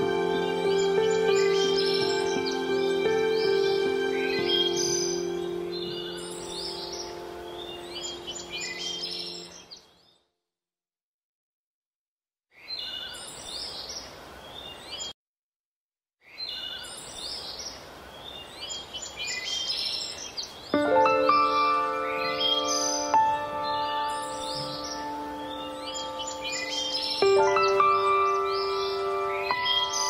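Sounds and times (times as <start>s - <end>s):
held music chord: 0.0s - 9.5s, 20.8s - 30.0s
small birds chirping: 0.0s - 10.2s, 12.5s - 15.2s, 16.2s - 30.0s.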